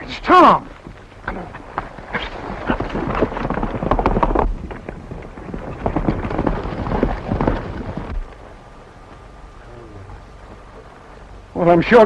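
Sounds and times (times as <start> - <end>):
horses galloping on dirt: 0.0 - 12.0.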